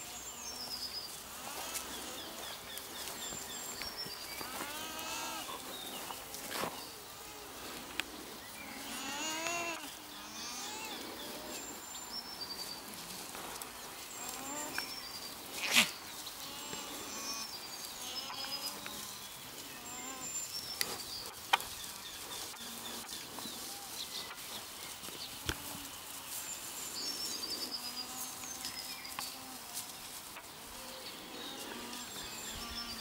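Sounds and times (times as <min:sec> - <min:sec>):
alpacas humming: 0:00.0 - 0:24.4, 0:25.3 - 0:33.0
birds chirping: 0:00.0 - 0:33.0.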